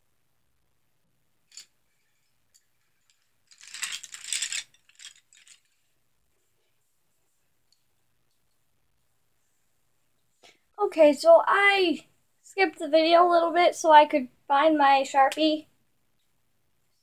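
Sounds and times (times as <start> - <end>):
small hard objects rattling: 1.5 - 5.9.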